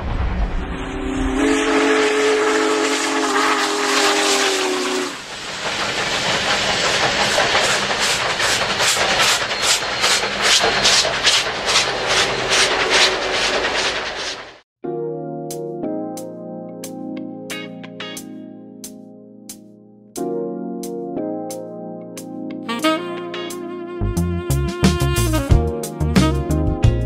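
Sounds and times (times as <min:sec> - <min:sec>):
steam locomotive whistle: 0:00.8 - 0:05.3, 0:22.7 - 0:23.5
steam hissing: 0:00.8 - 0:14.6
locomotive exhaust chuffing: 0:01.0 - 0:14.6.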